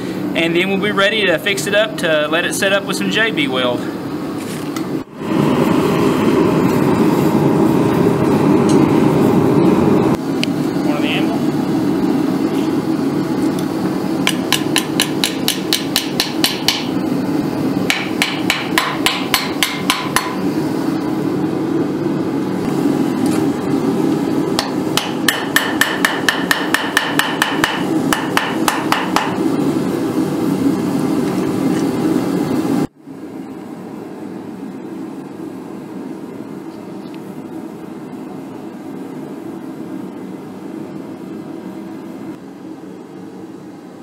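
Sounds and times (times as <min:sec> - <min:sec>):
steady background roar: 0:00.0 - 0:44.0
hammer striking on anvil: 0:14.3 - 0:16.9, 0:17.9 - 0:20.4, 0:24.6 - 0:29.4.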